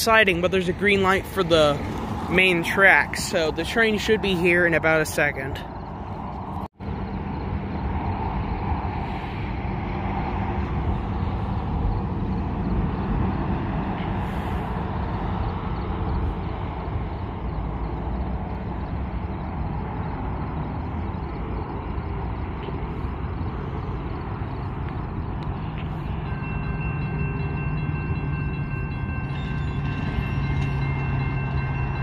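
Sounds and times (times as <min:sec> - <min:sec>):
road traffic rumble: 0:00.0 - 0:32.0.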